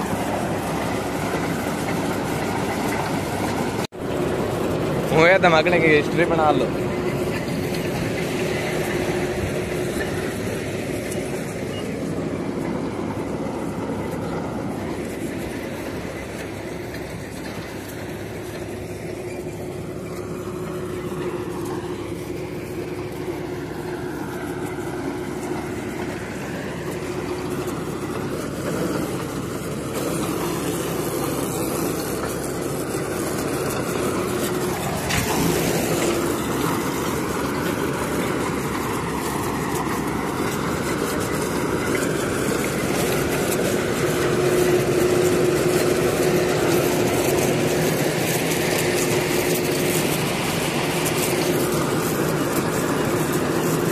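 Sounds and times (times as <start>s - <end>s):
drilling rig engine humming: 0.0s - 53.9s.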